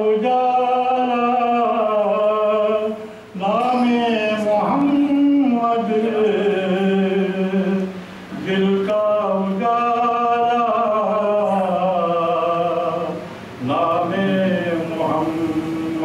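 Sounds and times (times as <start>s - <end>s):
man singing unaccompanied: 0.0s - 16.0s.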